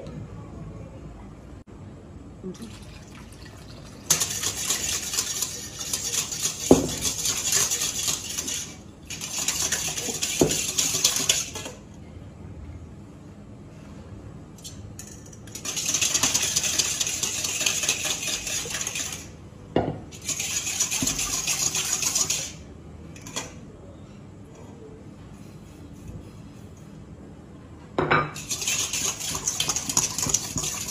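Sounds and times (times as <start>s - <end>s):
whisk rattling in metal bowl: 4.0s - 11.8s, 15.0s - 19.4s, 20.1s - 22.6s, 28.4s - 30.9s
whisk knocking on bowl: 4.1s - 11.7s, 20.4s - 22.5s, 28.4s - 30.9s.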